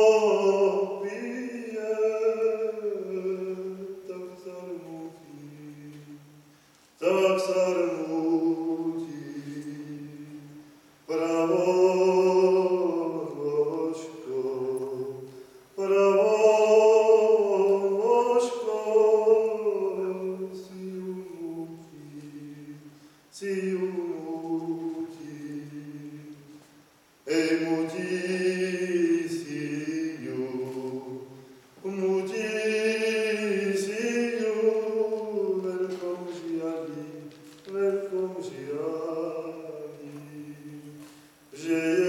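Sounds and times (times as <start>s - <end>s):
man singing unaccompanied: 0.0s - 42.0s.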